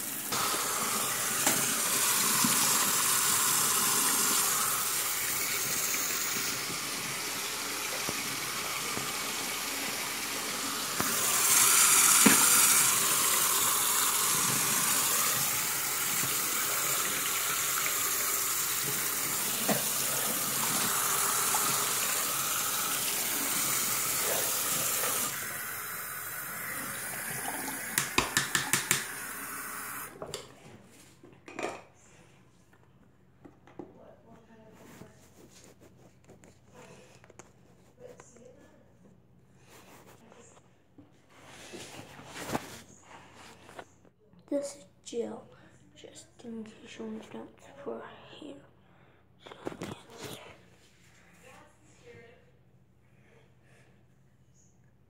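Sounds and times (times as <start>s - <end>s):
tap water running into sink: 0.0s - 30.2s.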